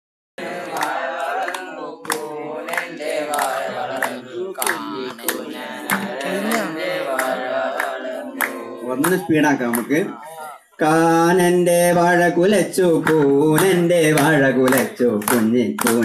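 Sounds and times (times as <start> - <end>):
group of people singing: 0.4 - 16.0
hand claps: 0.6 - 10.2, 13.0 - 16.0.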